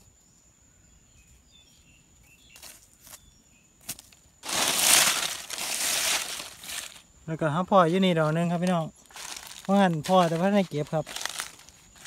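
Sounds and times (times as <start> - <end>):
faint bird chirps: 0.0 - 3.8
leaves and earth swept by hand: 3.8 - 7.1, 7.7 - 12.0
hand rustling dry leaves: 4.4 - 7.0, 7.7 - 12.0.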